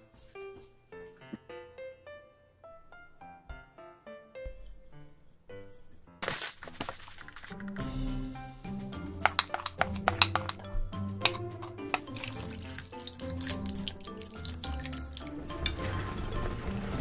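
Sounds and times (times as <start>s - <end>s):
background music: 0.0s - 17.0s
sharp clicks and taps: 9.2s - 10.6s
water pouring into metal pan: 12.0s - 17.0s.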